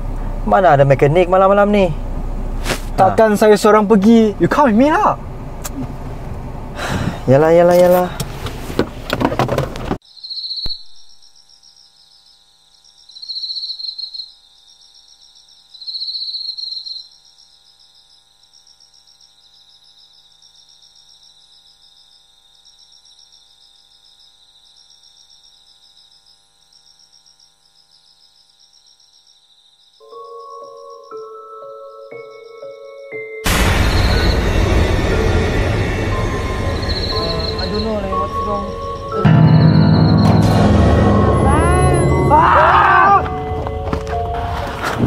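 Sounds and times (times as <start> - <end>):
crickets chirping: 10.0 - 32.8, 33.5 - 42.2.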